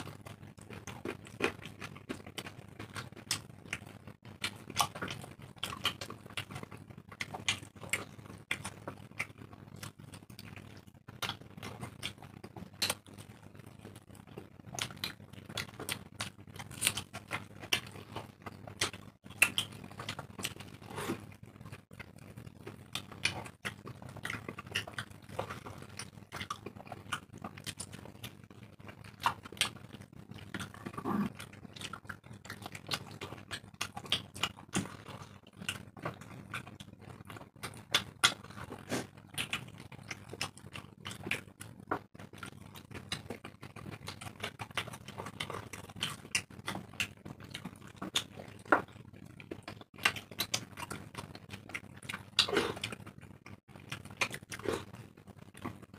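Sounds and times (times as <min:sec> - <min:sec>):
wet chewing and lip smacks: 0:22.0 - 0:55.9.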